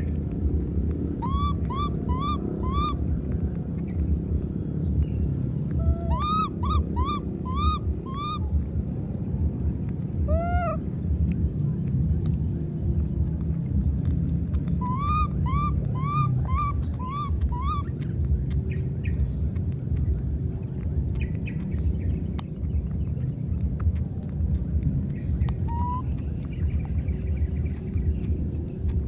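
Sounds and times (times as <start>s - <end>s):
low rumbling noise: 0.0s - 29.0s
baby monkey cooing cries: 1.1s - 3.2s, 5.7s - 8.6s, 10.2s - 10.9s, 14.7s - 18.0s, 25.6s - 26.2s.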